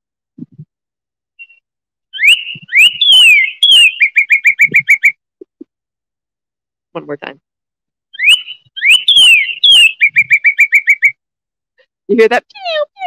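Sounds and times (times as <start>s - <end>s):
bird song whistles: 1.4s - 1.6s, 2.2s - 5.1s, 8.2s - 11.2s
short repeated bird notes: 2.2s - 5.1s, 8.2s - 11.1s.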